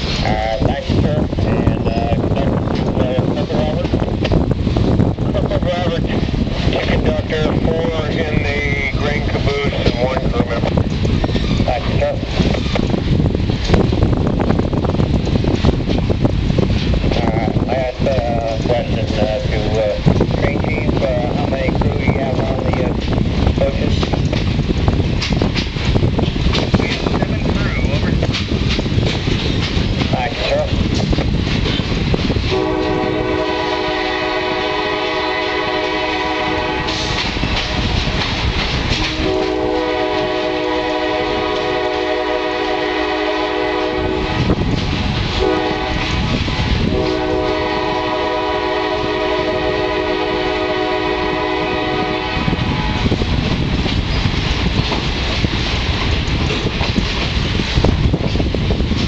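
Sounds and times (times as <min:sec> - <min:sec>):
train rumble and rail clatter: 0:00.0 - 0:59.0
locomotive air horn blasts: 0:32.5 - 0:37.9, 0:39.0 - 0:44.6, 0:45.4 - 0:53.1.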